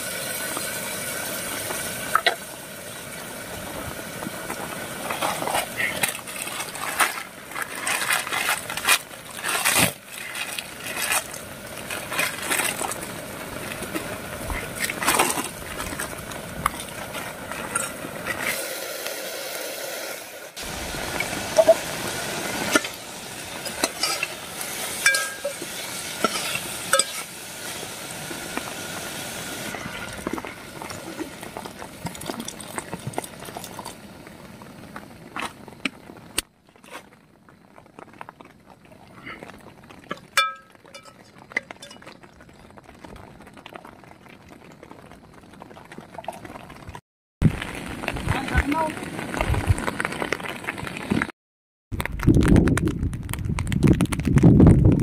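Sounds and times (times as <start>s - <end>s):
food sizzling in a pot: 0.0s - 35.3s
metal ladle clinking and scraping pot: 22.7s - 27.3s.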